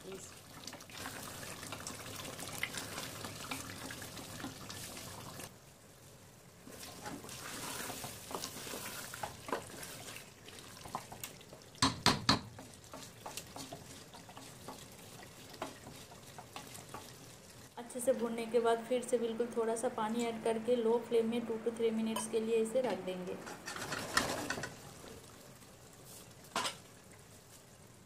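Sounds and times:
curry sizzling as it is stirred: 0.0s - 21.1s, 22.1s - 28.0s
spoon scraping metal pot: 23.4s - 24.8s.

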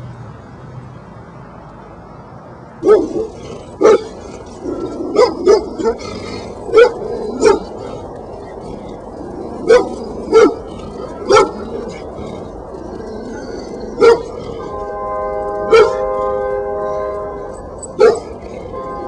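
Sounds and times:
dog barking: 2.8s - 4.2s, 5.1s - 6.1s, 6.7s - 7.8s, 9.6s - 12.0s, 14.0s - 14.5s, 15.6s - 16.1s, 17.9s - 18.4s.

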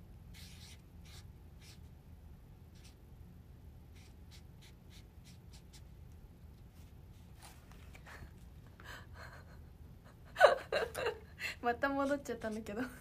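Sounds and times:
pen scratching on paper: 0.3s - 1.9s, 2.8s - 3.0s, 3.9s - 5.9s
sketchbook handling sounds: 6.6s - 8.4s.

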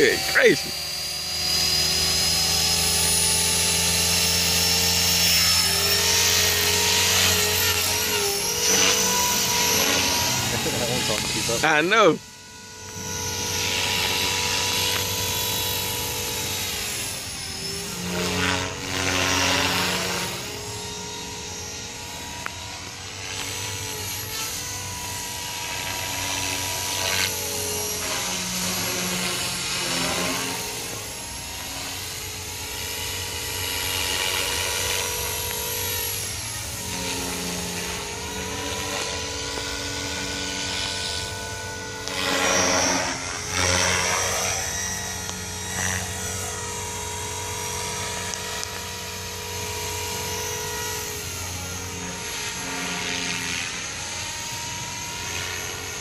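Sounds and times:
helicopter motor and rotor whine: 0.0s - 56.0s.

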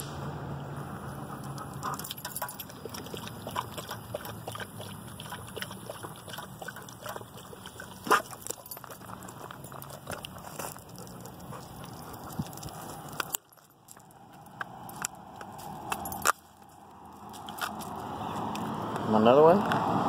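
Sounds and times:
dog lapping water: 1.1s - 13.5s.

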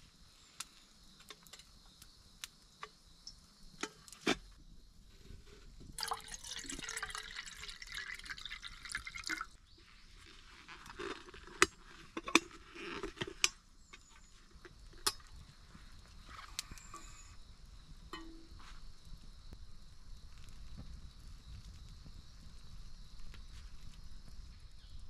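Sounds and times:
water pouring into a kettle: 5.8s - 9.6s.

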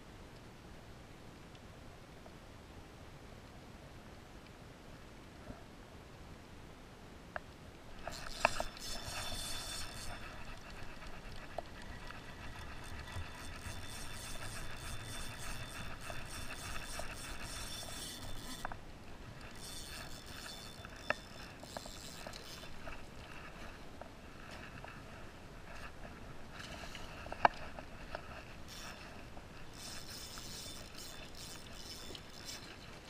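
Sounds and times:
fishing reel gears whirring: 8.0s - 23.7s, 25.7s - 33.0s.

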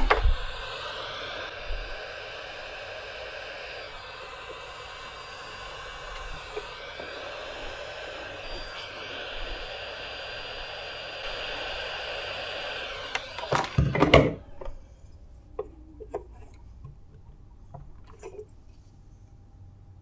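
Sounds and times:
hot air gun hissing: 0.0s - 15.2s.

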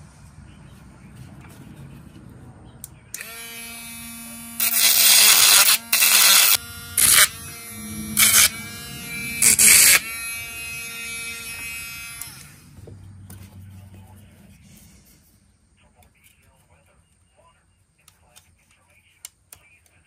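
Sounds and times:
grinding metal: 3.1s - 13.2s
electric grinder whine: 3.2s - 12.8s.

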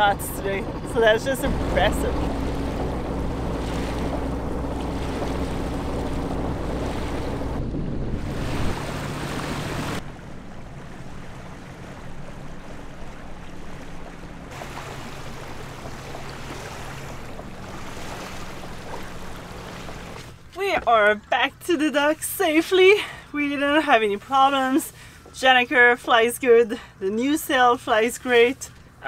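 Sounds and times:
diesel engine hum: 0.0s - 21.2s
water noise: 0.0s - 29.0s
wind: 0.0s - 29.0s.

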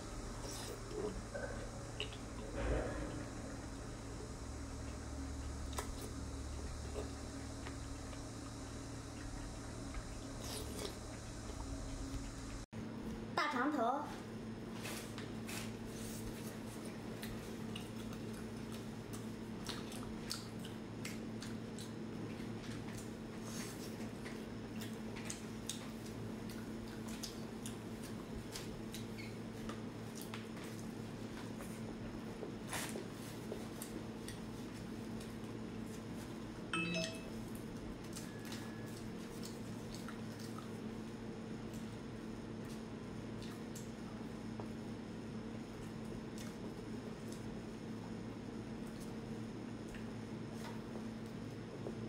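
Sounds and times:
low hum: 0.0s - 13.3s
low steady hum: 0.0s - 52.0s
person chewing wetly: 5.7s - 12.3s, 17.0s - 23.2s, 23.9s - 30.9s, 38.0s - 41.0s
chime of clear tones: 36.7s - 37.4s.

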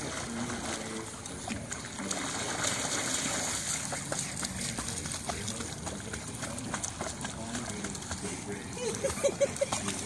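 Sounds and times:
dogs splashing through water: 0.0s - 10.0s
small water ticks: 3.5s - 10.0s.

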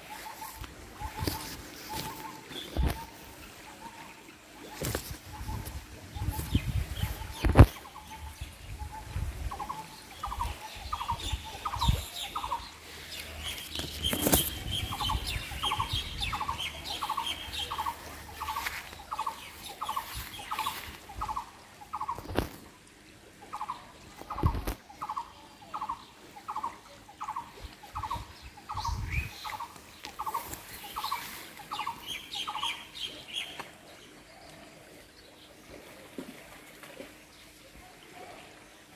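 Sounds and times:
faint bird twittering: 4.7s - 22.4s, 23.5s - 33.6s.

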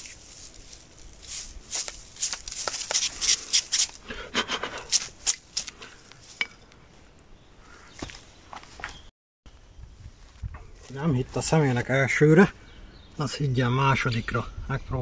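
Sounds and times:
dry grass crackling and rustling: 0.0s - 4.0s, 4.9s - 6.9s.

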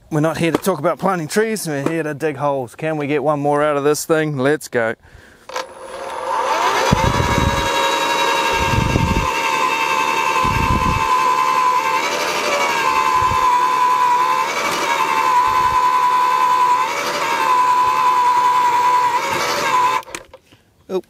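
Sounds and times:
electric motor high whine: 5.5s - 20.3s.

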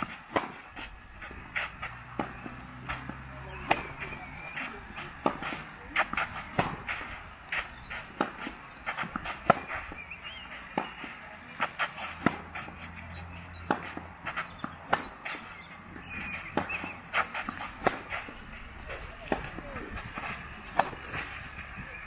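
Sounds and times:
racket hitting tennis ball: 0.0s - 22.0s
shoes scuffing on clay: 0.0s - 22.0s
ball bouncing: 16.0s - 22.0s.

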